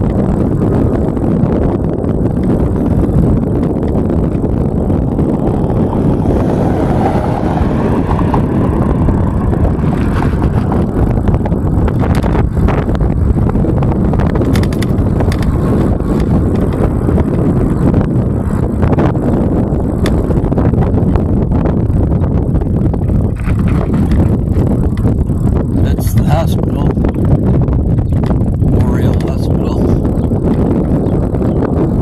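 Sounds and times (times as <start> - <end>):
tyre and road rumble: 0.0 - 32.0
wind buffeting microphone: 0.0 - 32.0
sharp rattles: 14.2 - 16.9.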